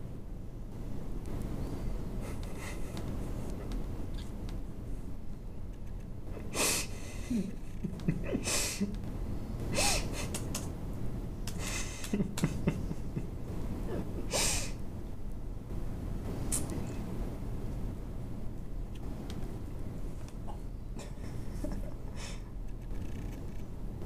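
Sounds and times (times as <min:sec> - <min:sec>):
steady low hum: 0:00.0 - 0:24.0
person breathy bursts: 0:06.5 - 0:07.5, 0:08.4 - 0:08.9, 0:09.7 - 0:10.4, 0:14.3 - 0:14.8
faint squeaks: 0:22.8 - 0:23.7.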